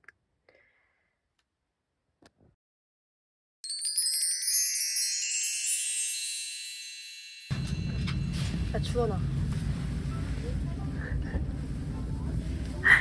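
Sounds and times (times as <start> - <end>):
twinkling chime sound effect: 3.6 - 9.2.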